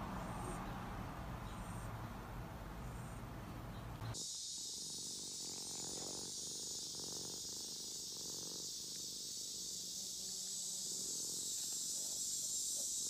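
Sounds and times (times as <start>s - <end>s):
steady high hiss: 0.0s - 13.0s
cat purring: 4.5s - 12.2s.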